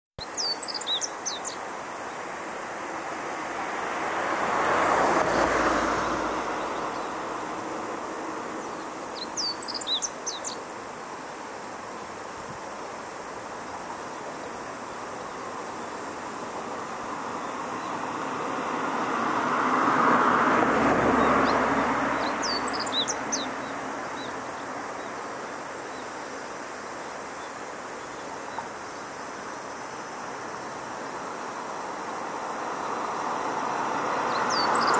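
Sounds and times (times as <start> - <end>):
bird twittering song: 0.2 - 2.2, 6.0 - 7.2, 8.5 - 10.6, 21.2 - 26.4, 34.1 - 34.9
passing vehicles: 0.4 - 11.6, 12.8 - 34.9.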